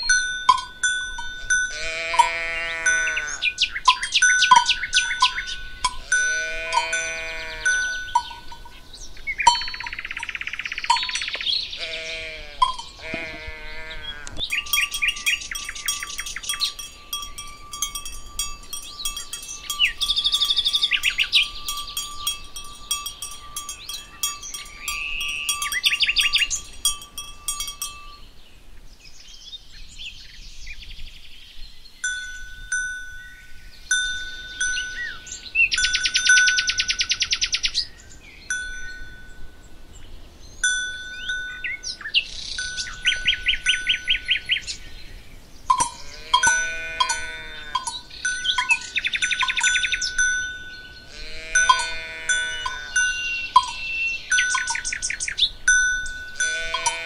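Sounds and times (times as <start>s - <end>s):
cowbells ringing: 0.0s - 28.4s, 32.0s - 44.8s, 45.7s - 57.0s
birds singing: 0.0s - 32.3s, 33.1s - 57.0s
livestock bleating: 1.7s - 3.6s, 6.0s - 8.1s, 11.8s - 14.6s, 45.9s - 48.0s, 51.1s - 53.3s, 56.4s - 57.0s.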